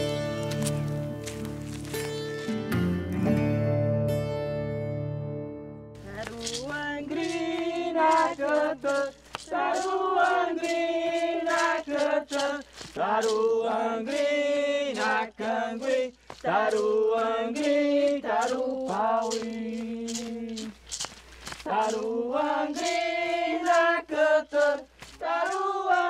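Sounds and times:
voices singing a chant: 6.1 - 20.8, 21.6 - 26.0.

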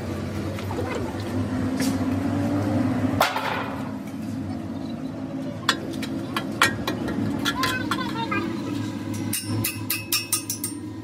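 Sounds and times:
metal tool striking and scraping: 9.0 - 11.0.

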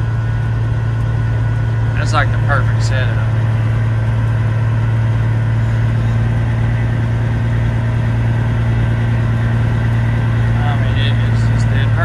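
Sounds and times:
truck diesel engine droning: 0.0 - 12.0.

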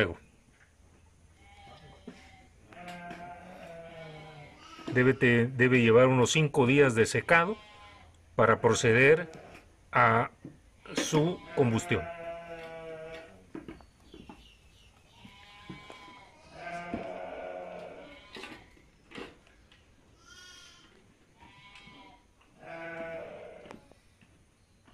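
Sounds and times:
sheep bleating: 1.4 - 5.5, 6.9 - 9.6, 10.9 - 13.4, 15.2 - 18.6, 20.2 - 23.8.

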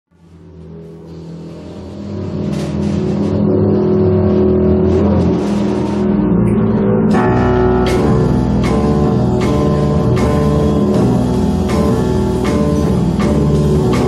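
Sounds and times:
low sustained ensemble tones: 0.2 - 14.0
higher instruments playing: 0.4 - 14.0
cymbal washes: 7.2 - 14.0.

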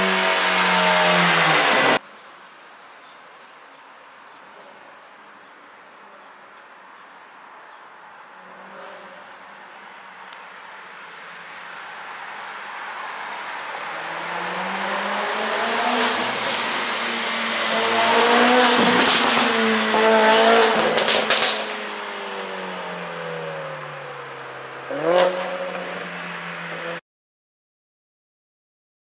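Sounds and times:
engine revving: 0.0 - 2.0, 13.8 - 23.9, 24.9 - 27.0
car accelerating past: 12.2 - 27.0.

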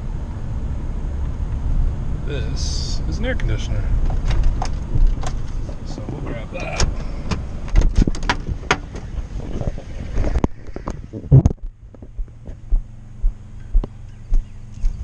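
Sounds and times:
steady low hum: 0.0 - 15.0
person climbing out of truck: 4.0 - 5.9, 6.5 - 12.7
car door shutting: 6.5 - 9.2.

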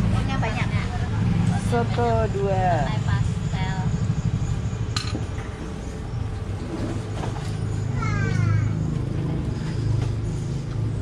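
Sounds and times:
vehicle engine rumble: 0.0 - 11.0.

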